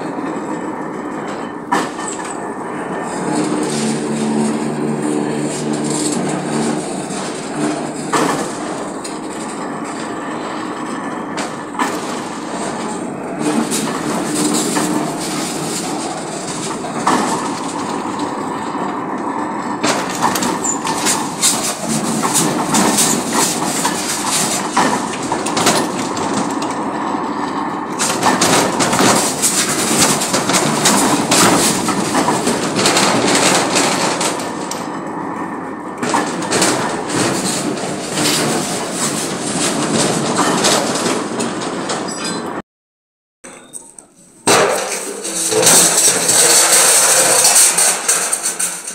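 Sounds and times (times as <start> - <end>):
metal-on-metal grinding rasp: 1.3 - 18.9, 19.8 - 26.2, 44.5 - 48.9
sharp metal clicks and scrapes: 43.5 - 48.9.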